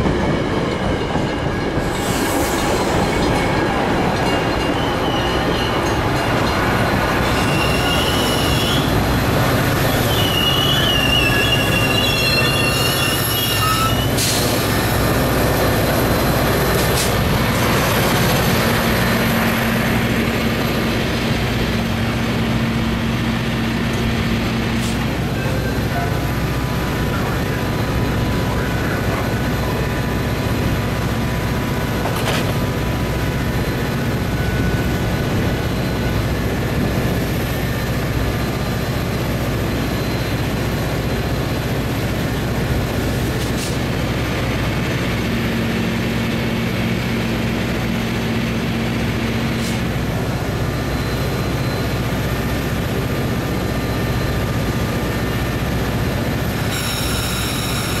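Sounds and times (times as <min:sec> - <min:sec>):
diesel locomotive idling: 0:02.7 - 0:58.0.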